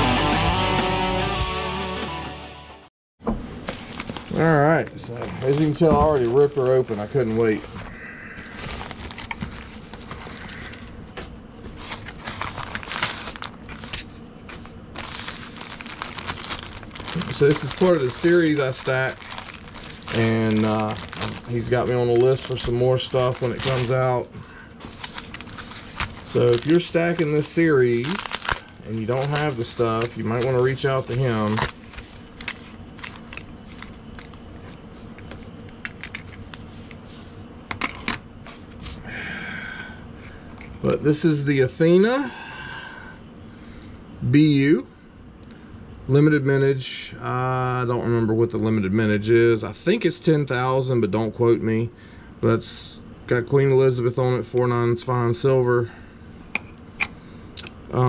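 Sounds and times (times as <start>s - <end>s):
cardboard envelope rustling: 3.7s - 7.8s, 8.4s - 37.3s
plastic mailer bag crinkling: 3.7s - 7.8s, 8.4s - 10.9s, 11.7s - 37.1s.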